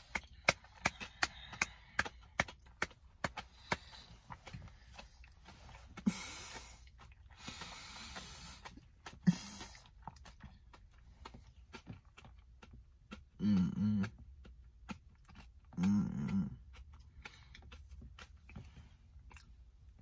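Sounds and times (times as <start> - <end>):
person humming mm: 13.4 - 14.2, 15.7 - 16.6.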